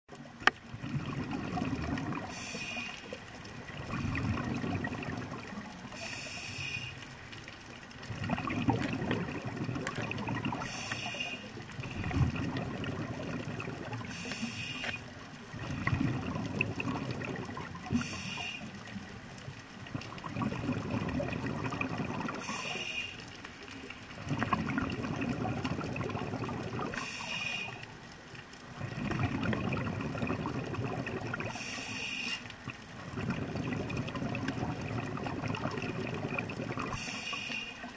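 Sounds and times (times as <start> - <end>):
exhaled air bubbling: 0.2 - 37.9
regulator inhalation hiss: 2.2 - 3.3, 5.9 - 7.1, 10.6 - 11.6, 14.0 - 15.1, 17.9 - 18.9, 22.4 - 23.4, 26.9 - 27.9, 31.5 - 32.6, 36.9 - 37.9.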